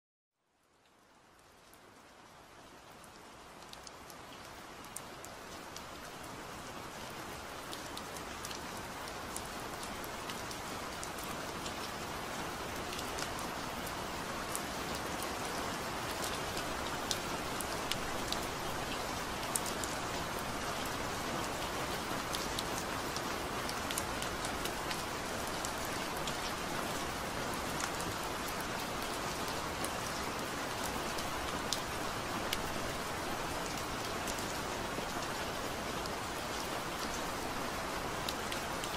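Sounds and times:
steady rain: 0.4s - 38.9s
rain drop ticks: 3.6s - 5.1s.

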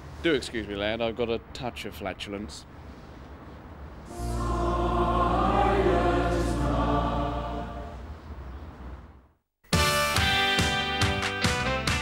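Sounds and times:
low steady drone: 4.1s - 8.2s
choir singing chords: 4.1s - 8.3s.

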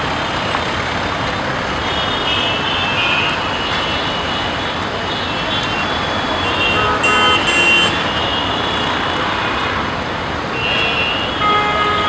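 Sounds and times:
dense road traffic passing: 0.0s - 12.0s
car horns honking: 1.8s - 9.9s, 10.6s - 12.0s.

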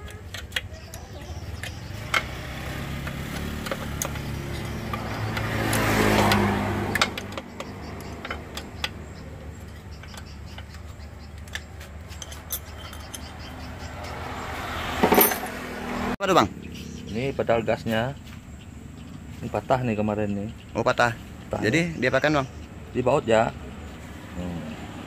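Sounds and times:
vehicle engine passing by: 1.3s - 11.0s, 11.7s - 25.0s
metallic clicks of tools: 9.7s - 13.5s.

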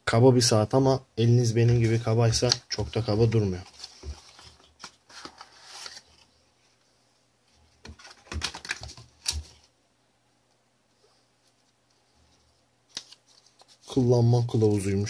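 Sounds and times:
paper packaging rustling: 1.8s - 6.3s, 7.8s - 9.7s.

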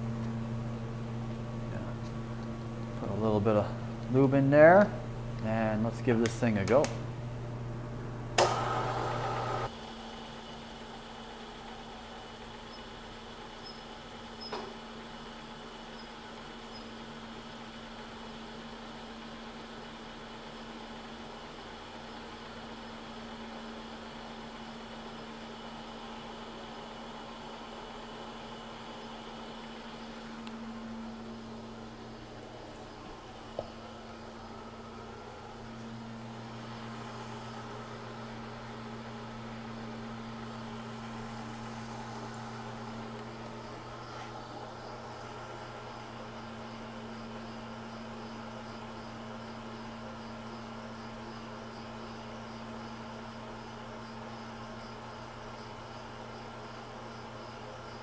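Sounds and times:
milling machine humming: 0.0s - 21.5s, 22.2s - 58.0s.

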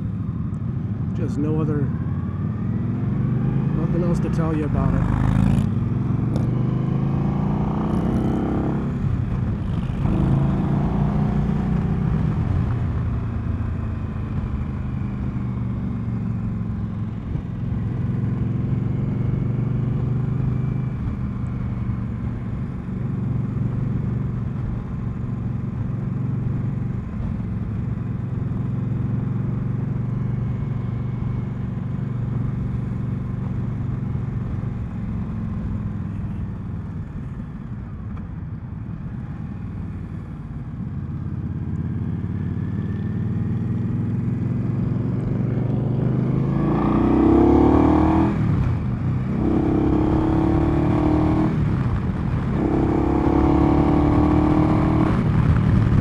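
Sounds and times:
motorcycle engine revving: 1.2s - 24.4s, 41.5s - 56.0s.

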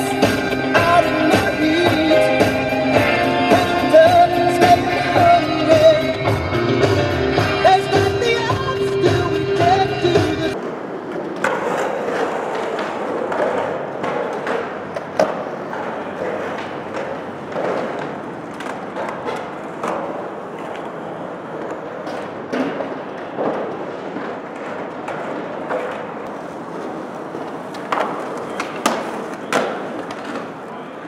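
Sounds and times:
skateboard wheels rolling on concrete: 0.0s - 31.0s
skateboard clacking on ramp: 10.5s - 31.0s.

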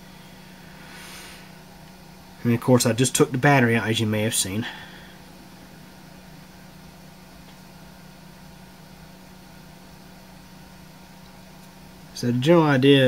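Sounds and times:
faint hiss: 0.0s - 2.6s
low room hum: 0.0s - 13.0s.

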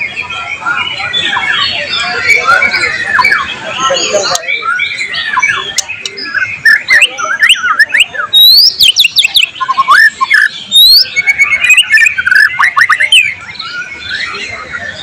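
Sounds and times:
bird singing: 0.0s - 15.0s.

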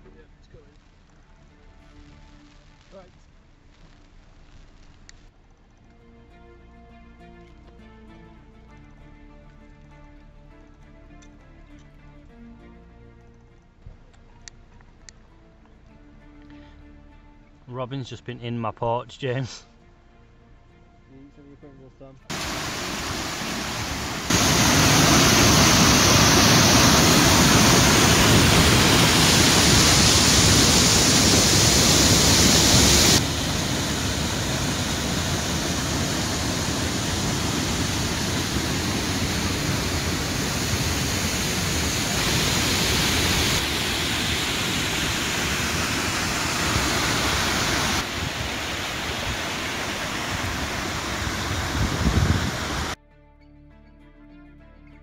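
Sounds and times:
rushing water: 22.3s - 53.0s.

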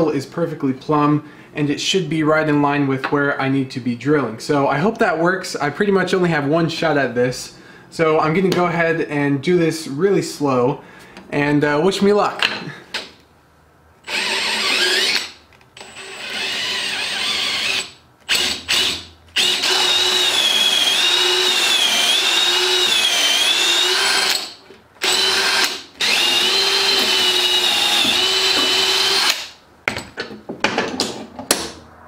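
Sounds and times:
cordless drill boring through wood: 14.0s - 29.5s.

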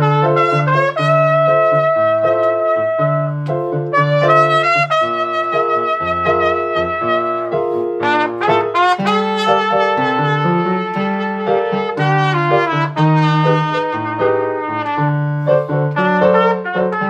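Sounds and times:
trumpet melody: 0.0s - 17.0s.

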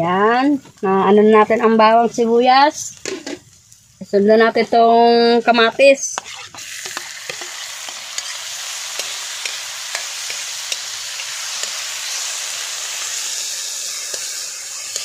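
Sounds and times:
tomatoes sizzling in oil: 0.0s - 15.0s.

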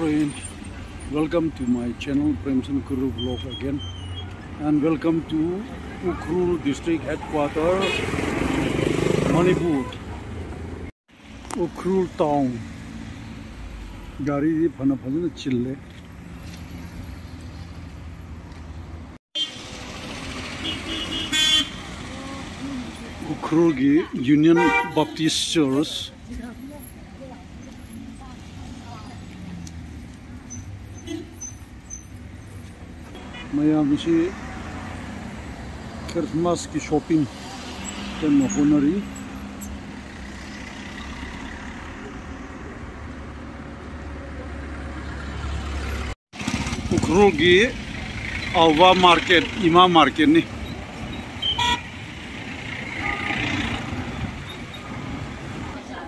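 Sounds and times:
low rumble of vehicle engines: 0.0s - 56.0s
road noise: 0.0s - 56.0s
vehicle horn toot: 20.6s - 21.8s, 24.5s - 25.1s, 51.4s - 52.0s, 53.0s - 53.6s.

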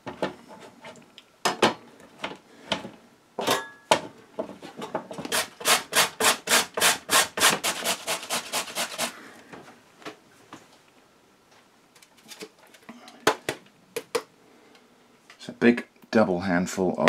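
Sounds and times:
squash grated on metal grater: 5.3s - 9.1s.

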